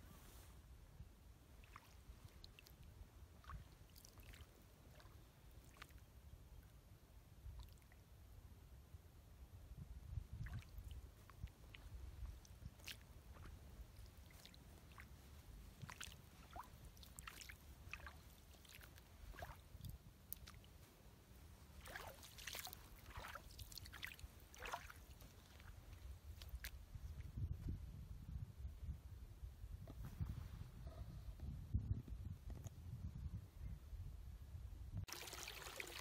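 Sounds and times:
wet squelches and splashes: 1.5 - 6.1, 7.4 - 8.0, 10.3 - 21.0, 21.6 - 27.3, 35.1 - 36.0
wind rumble on microphone: 8.4 - 17.9, 25.2 - 35.1.

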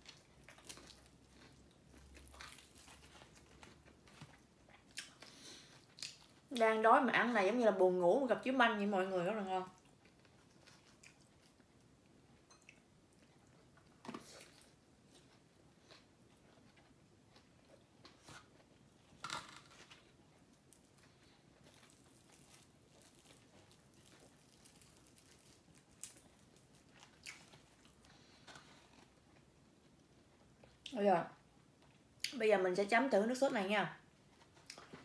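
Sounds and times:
chewing crispy fried chicken: 0.0 - 6.6, 9.7 - 19.2, 19.9 - 31.0.

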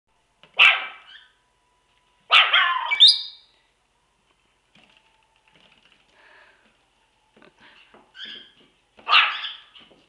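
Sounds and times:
puppy barking: 0.6 - 1.3, 2.3 - 3.2, 9.0 - 9.8
puppy squealing: 2.3 - 3.4, 9.1 - 9.8.

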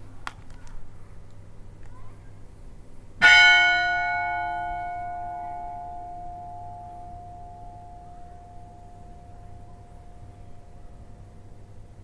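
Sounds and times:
church bell ringing: 3.2 - 11.4.

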